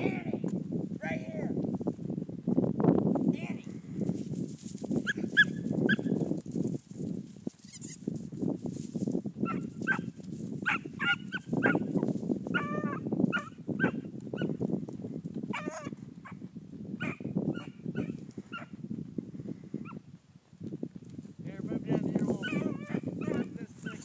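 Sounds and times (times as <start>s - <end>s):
dog barking and baying: 5.1s - 6.1s, 9.5s - 11.9s, 12.5s - 14.5s, 15.5s - 16.4s, 17.0s - 18.7s, 22.4s - 24.0s.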